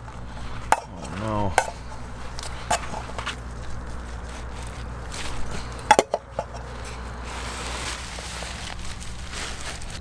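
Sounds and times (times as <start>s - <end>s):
dry leaves rustling: 0.0s - 10.0s
plastic bag rustling: 0.0s - 10.0s.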